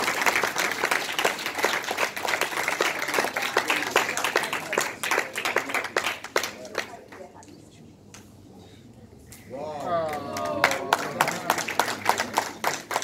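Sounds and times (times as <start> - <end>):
audience applause: 0.0 - 6.9, 10.0 - 13.0.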